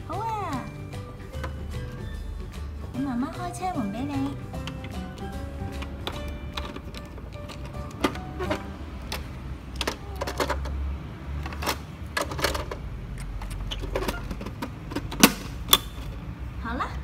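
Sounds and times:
plastic toy door clicks and knocks: 0:04.6 - 0:16.2
sharp plastic snaps: 0:11.4 - 0:16.2.

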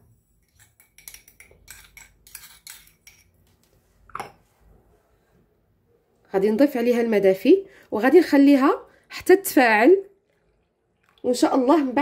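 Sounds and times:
spoon clinking on ceramic ramekins: 0:00.4 - 0:03.4.

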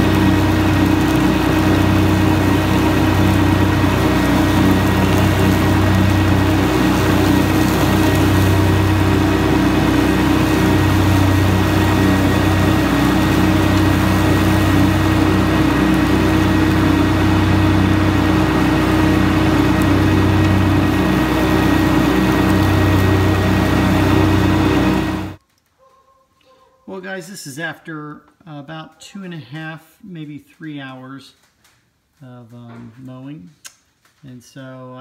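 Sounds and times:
tractor diesel engine running: 0:00.0 - 0:25.4.

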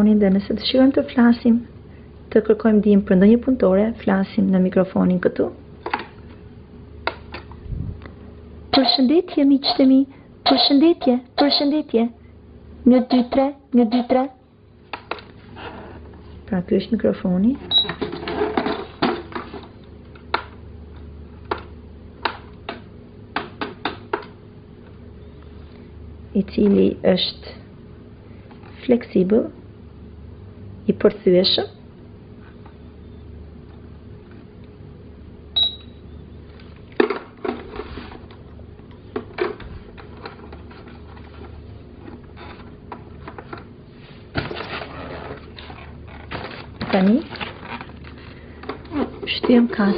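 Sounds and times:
faint steady hum: 0:00.0 - 0:49.9
toy cash register beep: 0:08.8 - 0:09.9, 0:10.5 - 0:11.7, 0:35.6 - 0:36.0.

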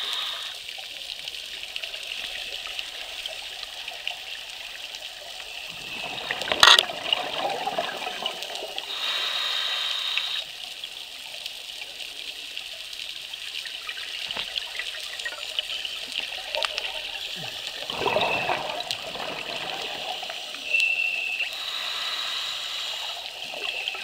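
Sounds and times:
regulator inhalation hiss: 0:00.0 - 0:00.8, 0:08.8 - 0:10.8, 0:19.8 - 0:24.0
fine crackle of water: 0:00.0 - 0:24.0
exhaled bubbles: 0:01.8 - 0:09.2, 0:13.4 - 0:21.8.

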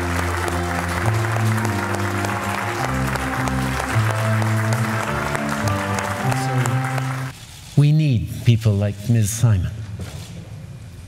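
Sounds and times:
slow held chords: 0:00.0 - 0:07.3
audience applauding: 0:00.0 - 0:07.4.

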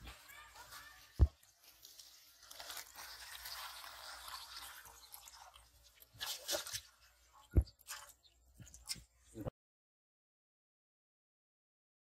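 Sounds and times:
fish splashing in water: 0:01.0 - 0:08.9.

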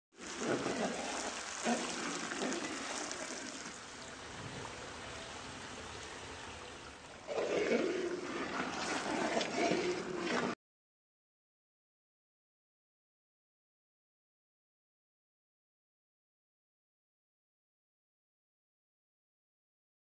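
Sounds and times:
curry sizzling and bubbling: 0:00.1 - 0:04.1.

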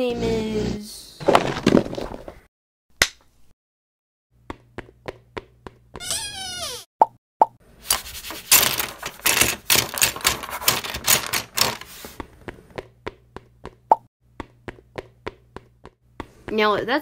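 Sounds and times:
plastic pieces clattering: 0:07.9 - 0:12.0.

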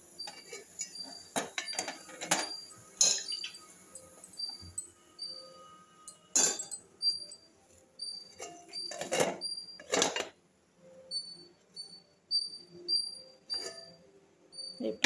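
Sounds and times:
faint high chirping: 0:00.0 - 0:09.9, 0:10.8 - 0:15.0
metal pot clattering and scraping: 0:00.2 - 0:04.8, 0:06.3 - 0:07.3, 0:08.3 - 0:10.4, 0:13.5 - 0:14.0.

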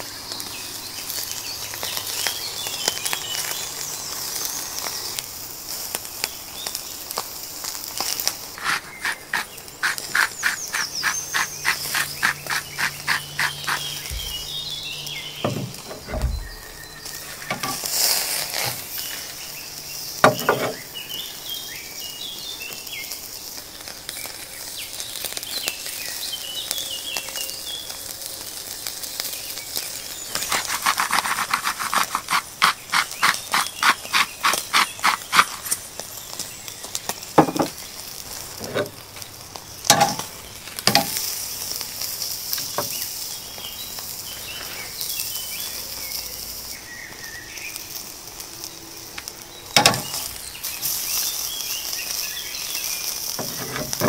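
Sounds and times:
meat sizzling on a grill: 0:00.0 - 0:54.0
birds chirping: 0:08.0 - 0:23.2, 0:29.3 - 0:48.0, 0:48.8 - 0:54.0.

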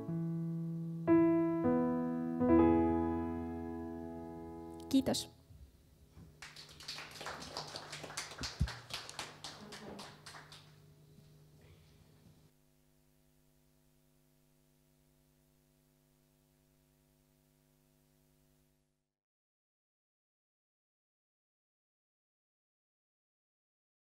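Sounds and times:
low electrical hum: 0:00.0 - 0:18.8
audience applauding: 0:06.4 - 0:10.8.

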